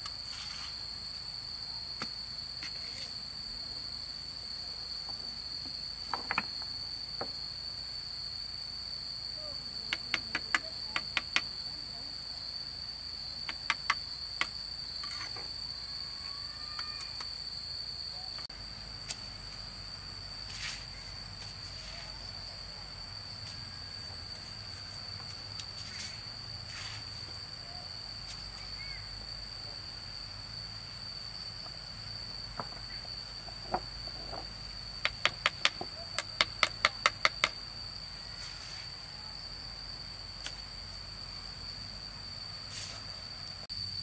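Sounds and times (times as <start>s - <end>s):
insects droning: 0.0s - 44.0s
stones set into mortar clicking: 35.0s - 37.6s.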